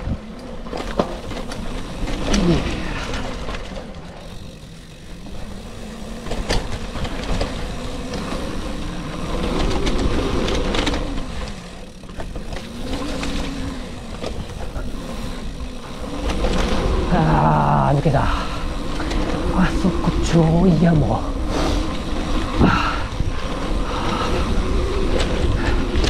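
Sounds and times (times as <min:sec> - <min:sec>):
wind and rolling tyres rumble: 0:00.0 - 0:26.0
sharp clicks and knocks: 0:06.1 - 0:08.7.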